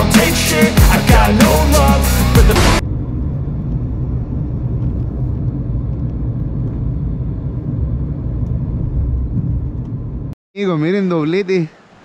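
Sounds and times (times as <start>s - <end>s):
river rushing: 11.0s - 12.0s.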